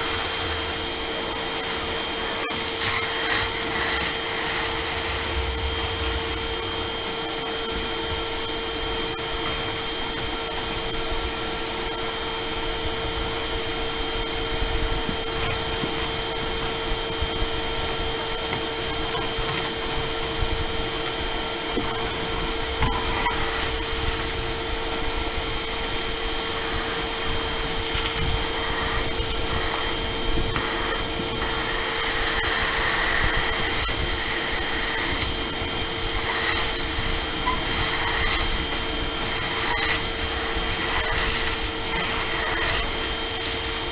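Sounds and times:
shop vacuum whining: 0.0 - 43.9.

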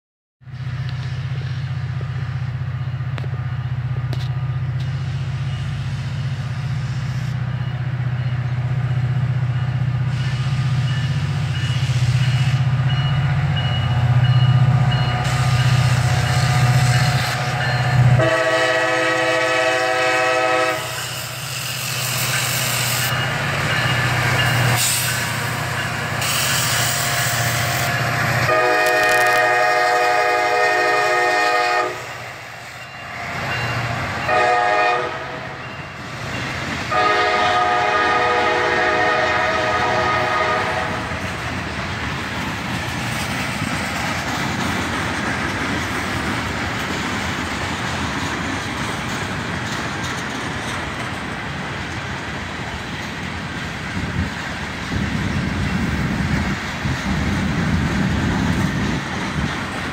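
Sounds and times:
diesel locomotive rumble: 0.4 - 59.9
train air horn chord: 15.3 - 21.1, 28.4 - 32.2, 34.3 - 35.6, 36.9 - 41.2.

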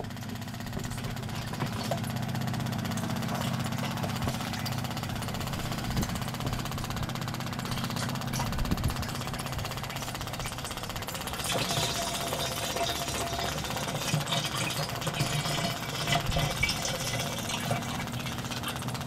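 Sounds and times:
machinery droning with rattling pulse: 0.0 - 19.0.

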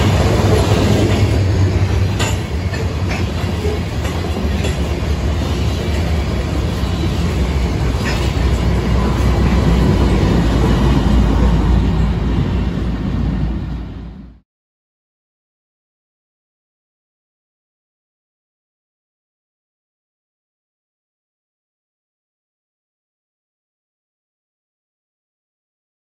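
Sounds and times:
diesel locomotive under power: 0.0 - 14.4
freight train rumbling past: 0.0 - 14.4.

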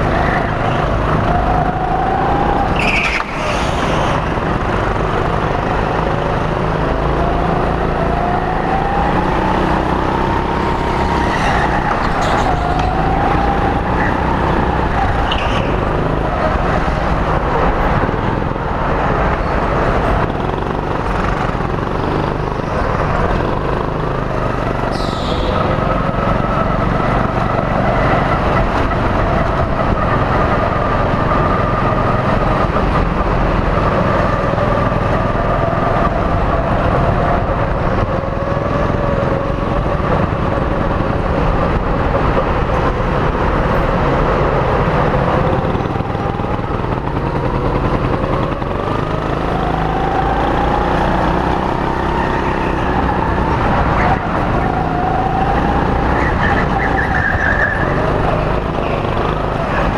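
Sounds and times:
go-kart motor: 0.0 - 59.9
high tyre squeals: 1.9 - 4.4, 15.0 - 16.2, 24.8 - 26.0, 56.1 - 59.9.

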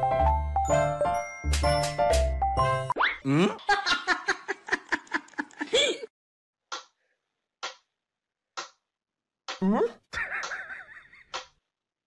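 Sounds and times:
music: 0.0 - 3.0
person giggling: 3.3 - 6.1, 10.2 - 11.3.

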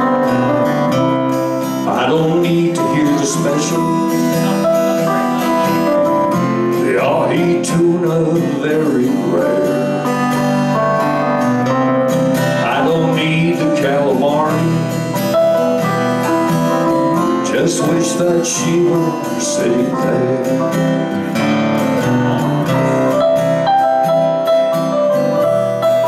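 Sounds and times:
acoustic guitar: 0.0 - 26.0
electric guitar: 0.0 - 26.0
keyboard: 0.0 - 26.0.

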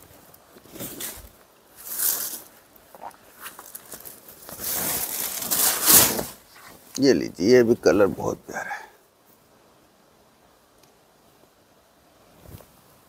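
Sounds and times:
fabric rustling and swishing: 3.3 - 6.9.

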